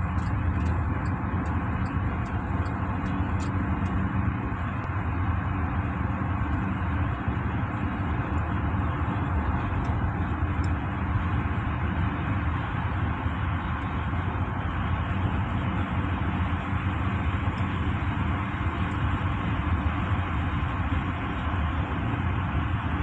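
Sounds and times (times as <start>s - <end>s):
car cabin road and engine noise: 0.0s - 23.0s
faint light ticks: 0.1s - 4.0s, 10.6s - 10.8s.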